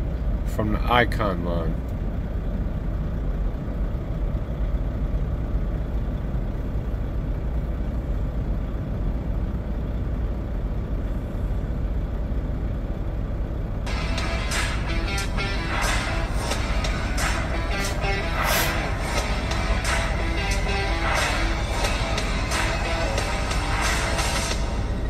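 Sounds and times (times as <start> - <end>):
low rumble with faint hiss: 0.0 - 25.0
music: 13.9 - 25.0.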